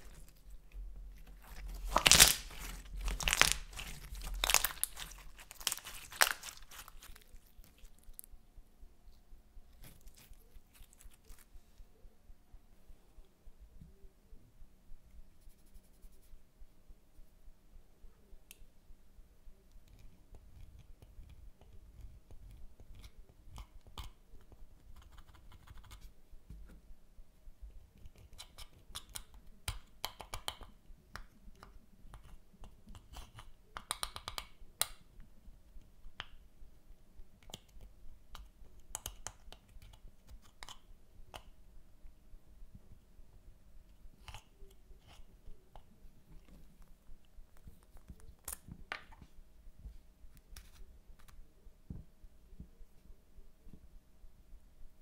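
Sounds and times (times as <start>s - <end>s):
faint crackling scratches: 0.0s - 8.3s, 9.0s - 11.9s, 15.3s - 16.4s, 43.9s - 51.5s.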